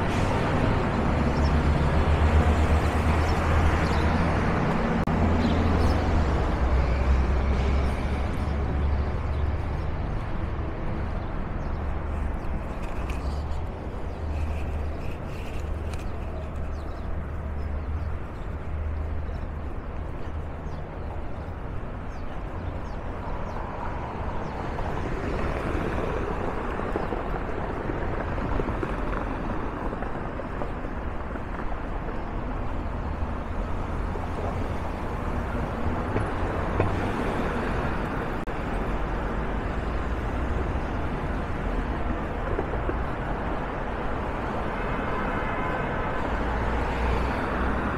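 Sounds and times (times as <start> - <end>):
low traffic rumble: 0.0 - 47.9
cars driving by: 32.4 - 47.9.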